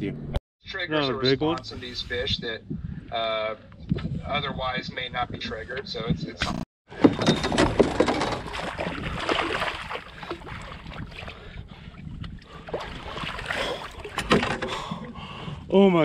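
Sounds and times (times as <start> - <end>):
water splashing around kayak: 6.9 - 15.1.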